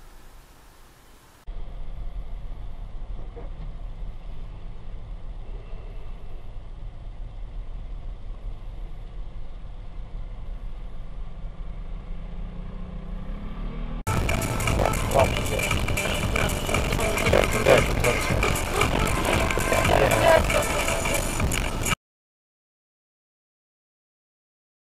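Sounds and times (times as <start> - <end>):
idling traffic rumble: 0.0 - 22.0
low hum rising in pitch: 12.0 - 22.0.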